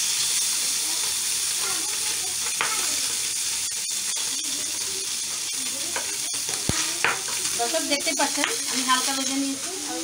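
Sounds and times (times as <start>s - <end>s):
fish sizzling in hot oil: 0.0s - 10.0s
metal spatula clicks and scrapes: 1.9s - 8.8s.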